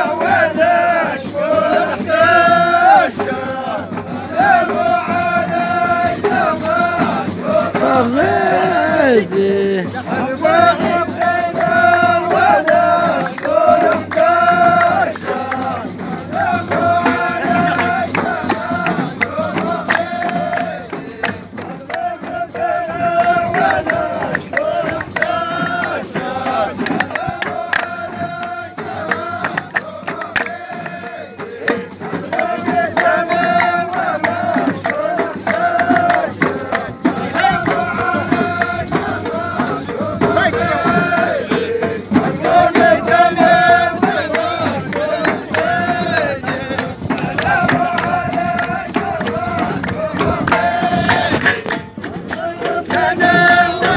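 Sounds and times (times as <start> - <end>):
group singing a chant in unison: 0.0 - 53.9
sharp percussive hits: 1.2 - 53.9.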